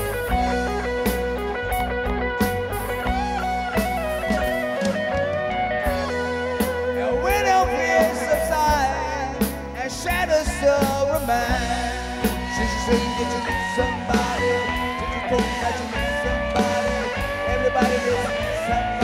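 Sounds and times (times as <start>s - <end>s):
live rock band playing: 0.0s - 19.0s
man singing: 6.9s - 19.0s.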